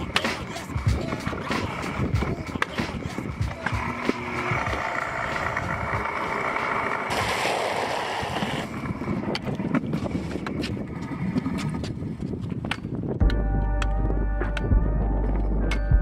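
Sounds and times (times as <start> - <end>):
wind on microphone: 0.0 - 6.4, 7.1 - 13.4
scooter clacking over boards: 0.0 - 12.8
scooter wheels rolling: 0.0 - 13.1.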